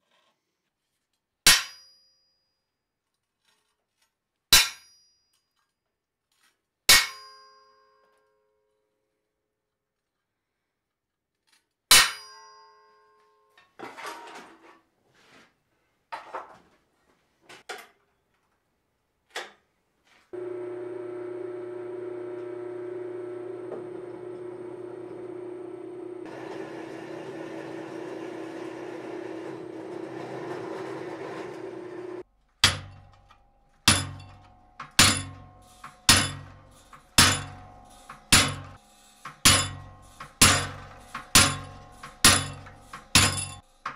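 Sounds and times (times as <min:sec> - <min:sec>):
drill press boring steel: 0:20.4 - 0:43.9
steel clanging: 0:25.4 - 0:43.9
hammer striking chisel on steel: 0:26.2 - 0:43.9.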